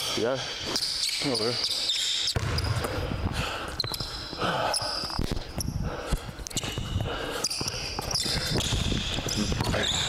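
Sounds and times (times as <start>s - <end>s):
sneakers squeaking on court: 0.6s - 3.0s, 3.8s - 5.8s, 6.5s - 10.0s
basketball bouncing on wooden floor: 7.6s - 10.0s.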